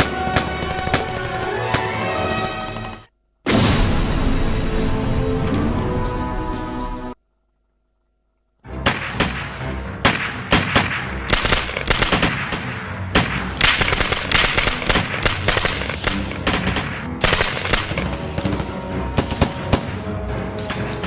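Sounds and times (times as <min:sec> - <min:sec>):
film music score: 0:00.0 - 0:07.2, 0:08.6 - 0:21.0
gunfire: 0:08.8 - 0:20.1.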